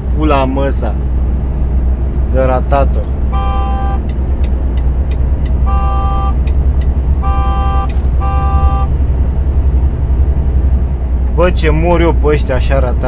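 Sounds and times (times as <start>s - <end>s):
low engine rumble: 0.0s - 13.0s
vehicle horn blasts: 3.3s - 4.0s, 5.6s - 6.4s, 7.2s - 9.0s.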